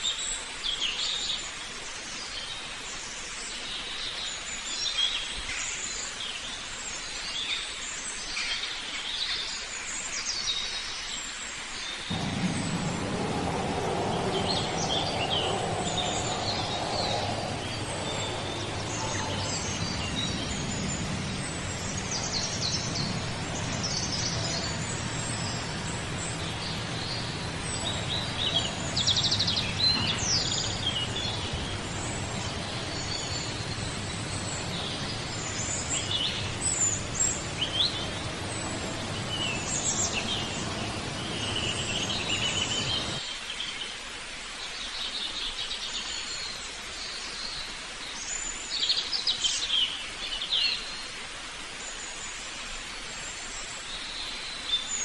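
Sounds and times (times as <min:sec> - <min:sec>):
outdoor background hiss: 0:00.0 - 0:55.0
low background rumble: 0:12.1 - 0:43.2
songbirds chirping and singing: 0:12.1 - 0:43.2.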